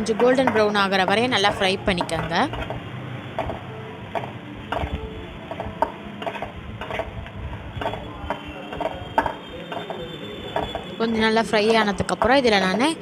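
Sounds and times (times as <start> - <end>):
spatula scraping a metal pan: 6.2 - 7.1.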